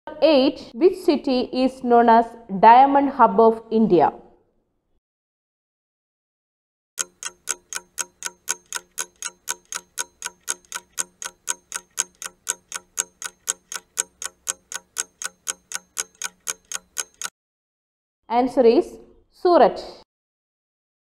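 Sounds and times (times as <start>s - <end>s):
clock ticking: 7.0s - 17.3s.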